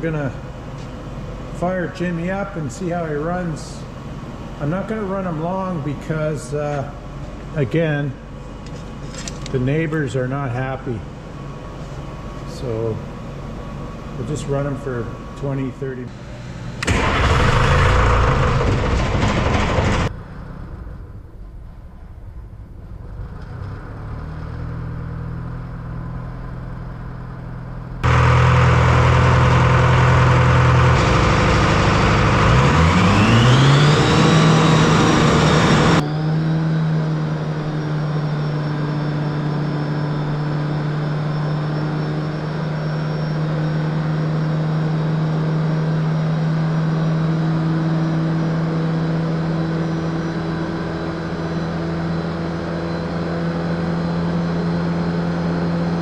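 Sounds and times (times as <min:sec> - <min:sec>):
diesel engine idling with whine: 0:00.0 - 0:56.0
diesel engine cranking: 0:16.8 - 0:21.0, 0:28.0 - 0:36.0.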